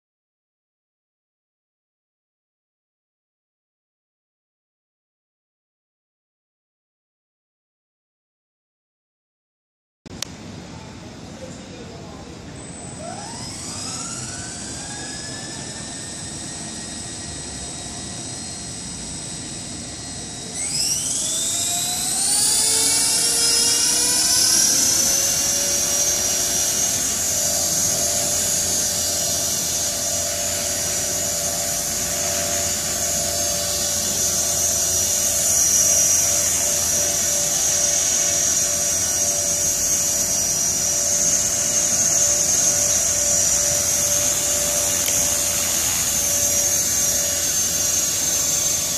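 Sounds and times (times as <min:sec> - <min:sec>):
helicopter motor whine: 0:11.4 - 0:48.9.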